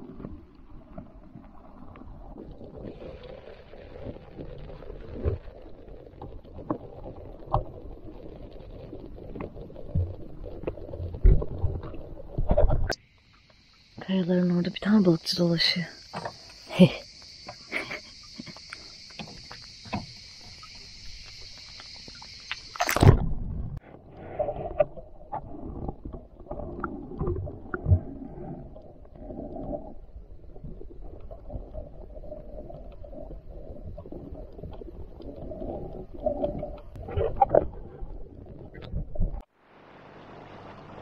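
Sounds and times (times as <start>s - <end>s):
insect chorus: 8.4s - 37.6s.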